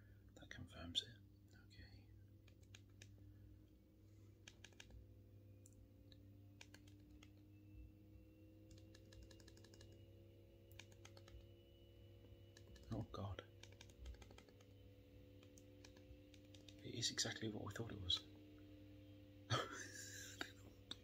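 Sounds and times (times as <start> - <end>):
low steady hum: 0.0 - 21.0
phone keypad buttons clicking: 4.5 - 5.0, 6.6 - 7.4, 8.7 - 10.0, 10.7 - 11.4, 12.5 - 12.9, 13.6 - 14.7, 15.4 - 16.8.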